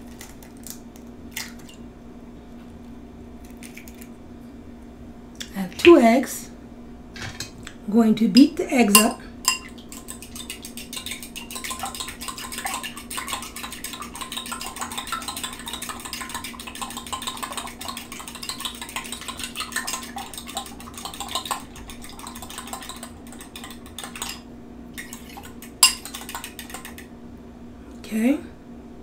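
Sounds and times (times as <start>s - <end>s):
fork clinking against glass bowl: 9.0s - 10.7s, 25.8s - 26.2s.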